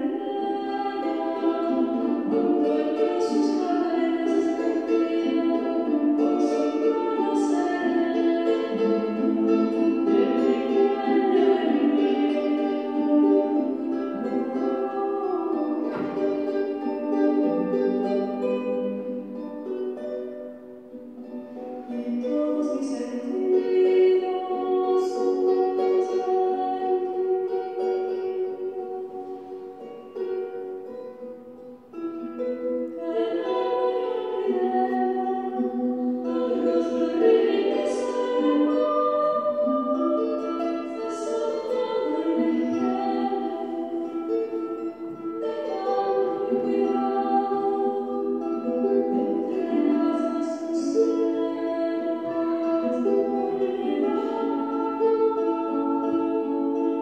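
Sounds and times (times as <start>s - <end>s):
choir singing held chords: 0.0s - 18.4s, 33.0s - 57.0s.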